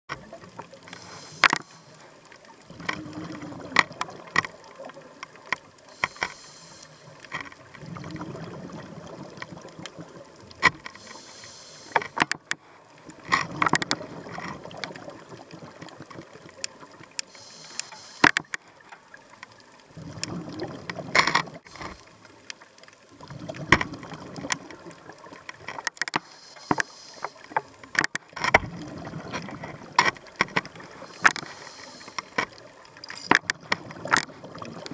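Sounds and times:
sharp clicks and crackles: 0.1s - 34.9s
diver breathing underwater: 0.9s - 2.0s, 5.9s - 7.2s, 11.0s - 12.8s, 17.2s - 18.6s, 26.2s - 27.6s, 30.8s - 32.4s
exhaled bubbles rumbling: 2.6s - 5.2s, 7.6s - 10.5s, 13.1s - 17.0s, 19.9s - 21.7s, 23.1s - 25.4s, 28.5s - 31.1s, 33.4s - 34.9s.

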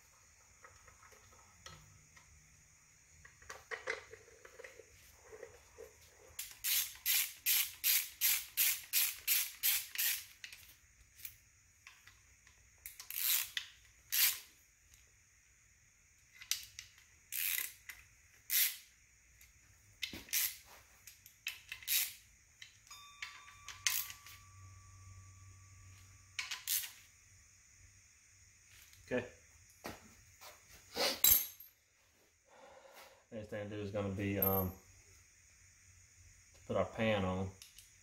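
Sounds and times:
ratchet wrench clicking: 6.4s - 15.0s, 16.3s - 18.9s, 20.0s - 24.4s, 26.4s - 27.0s.

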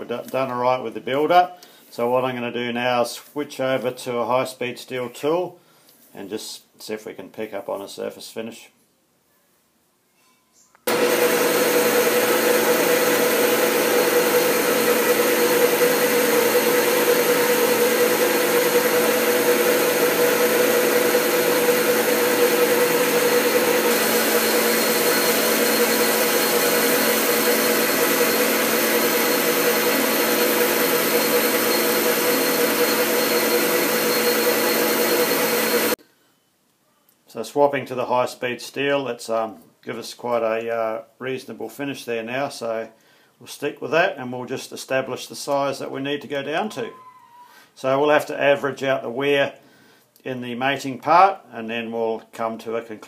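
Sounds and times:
metal lathe whining: 10.9s - 36.0s.

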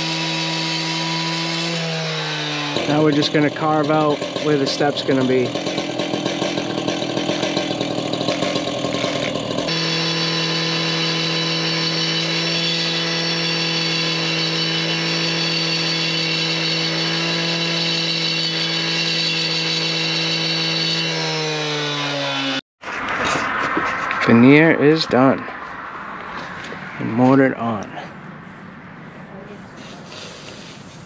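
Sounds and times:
gas cut-off saw cutting stone: 0.0s - 22.6s.

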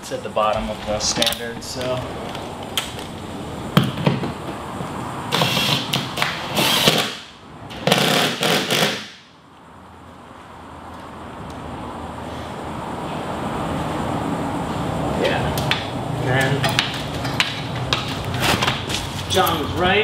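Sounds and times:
cordless power driver bursts: 5.3s - 7.3s.

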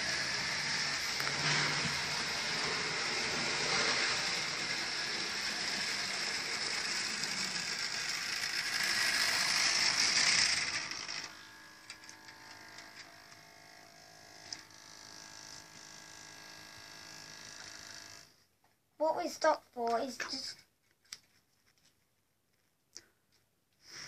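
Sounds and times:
model train whirring and rattling: 0.0s - 18.4s.

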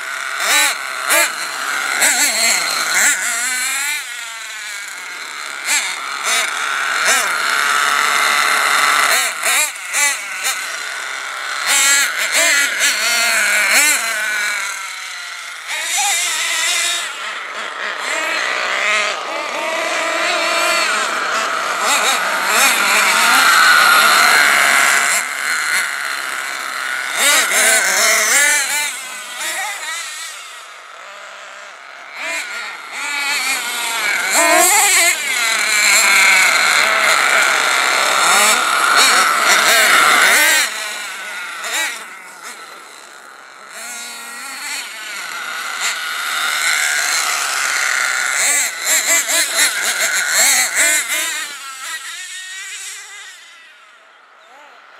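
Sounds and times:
rc truck engine revving: 0.0s - 54.9s.

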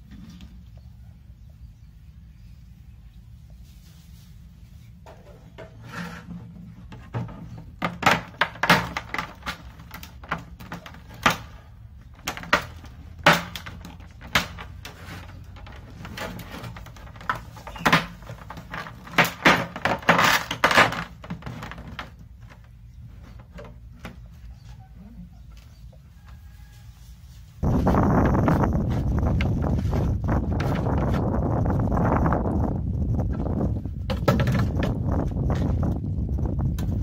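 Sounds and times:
plastic knocks and clatter: 6.4s - 24.2s, 34.0s - 35.1s
low hum: 27.6s - 37.0s.

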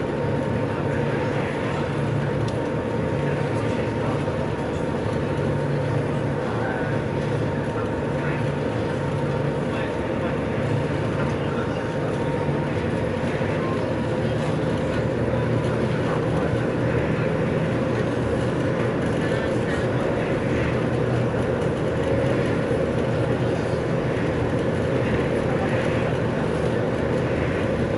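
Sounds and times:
ferry engines droning: 0.0s - 27.9s.

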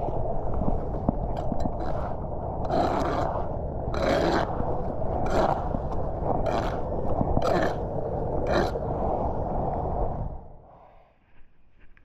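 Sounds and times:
steady low rumble: 0.0s - 10.9s.

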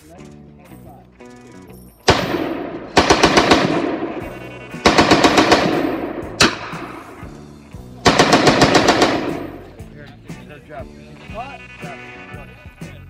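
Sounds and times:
automatic gunfire bursts: 2.1s - 7.2s, 8.0s - 9.7s
single gunshot: 5.3s - 6.9s.

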